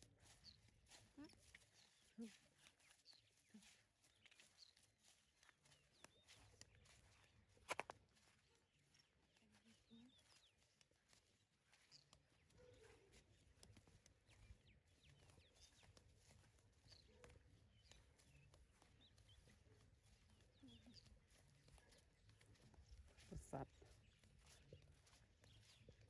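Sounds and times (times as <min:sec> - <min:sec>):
soft footsteps: 0:00.0 - 0:26.0
faint bird chirps: 0:00.1 - 0:26.0.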